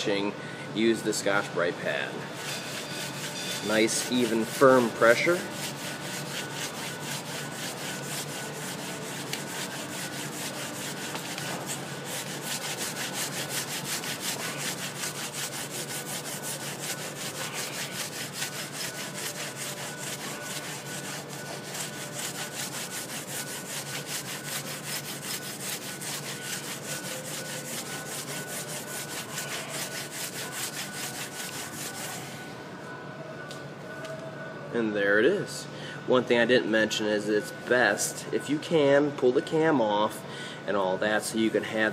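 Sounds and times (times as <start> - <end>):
grinder whining and rubbing metal: 2.3 - 32.6.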